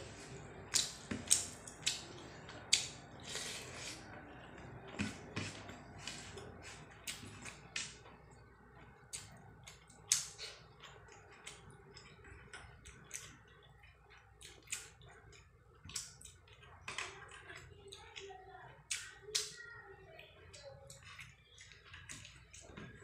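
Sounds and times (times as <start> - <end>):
fingers mixing rice on a plate: 0.1 - 18.2.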